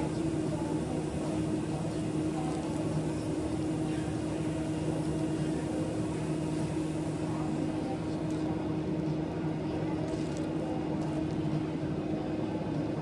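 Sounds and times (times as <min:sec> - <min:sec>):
kitchen equipment humming: 0:00.0 - 0:08.6.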